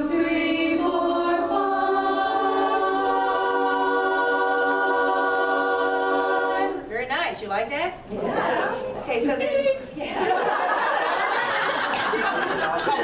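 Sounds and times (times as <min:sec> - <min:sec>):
a cappella chorus singing: 0:00.0 - 0:06.9.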